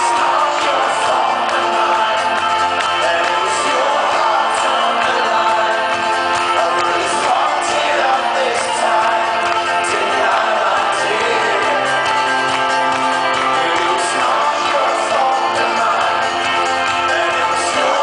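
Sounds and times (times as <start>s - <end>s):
live folk-rock band: 0.0s - 18.0s.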